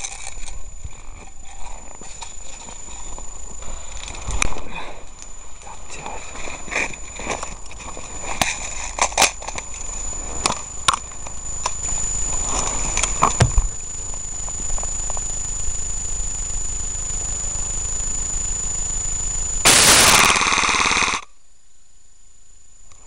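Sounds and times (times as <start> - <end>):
faint high whine: 0.0 - 23.0
steady hiss: 19.6 - 21.2.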